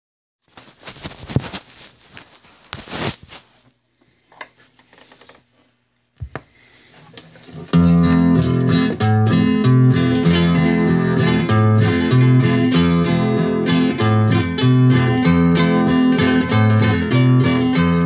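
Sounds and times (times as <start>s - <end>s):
acoustic guitar chords: 7.6s - 18.0s.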